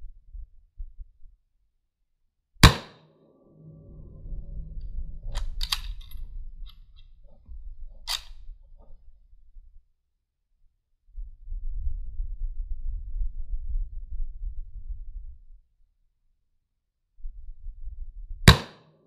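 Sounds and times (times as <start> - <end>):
rifle shot: 2.6 - 3.0
low rumble: 2.6 - 9.7.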